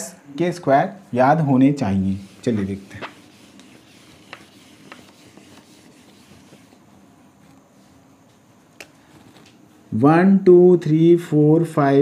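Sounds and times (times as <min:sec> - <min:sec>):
duster rubbing whiteboard: 0:01.8 - 0:09.4.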